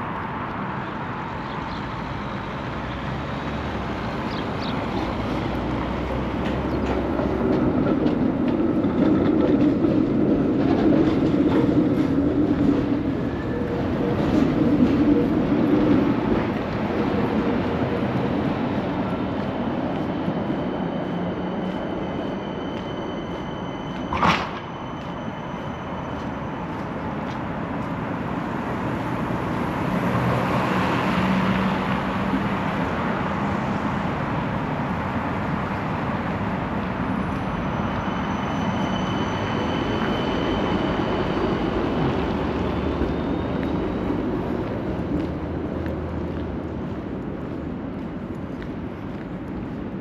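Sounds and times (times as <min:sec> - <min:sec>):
passing vehicles: 0:00.0 - 0:22.9, 0:24.0 - 0:50.0.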